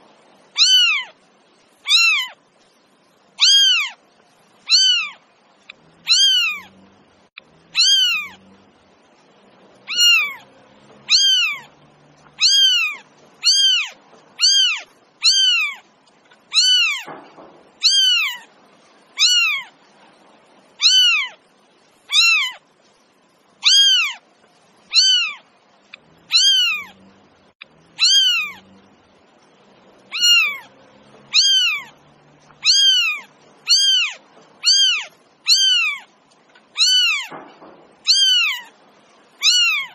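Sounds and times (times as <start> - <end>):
cat meowing: 0.5 - 1.2, 1.8 - 2.4, 3.4 - 4.0, 4.6 - 5.2, 6.0 - 6.8, 7.7 - 8.5, 9.8 - 15.9, 16.5 - 17.2, 17.8 - 18.5, 19.2 - 19.8, 20.8 - 21.4, 22.1 - 22.6, 23.6 - 24.2, 24.9 - 25.5, 26.2 - 27.0, 27.9 - 28.7, 30.1 - 36.1, 36.7 - 37.4, 38.0 - 38.7, 39.4 - 39.9.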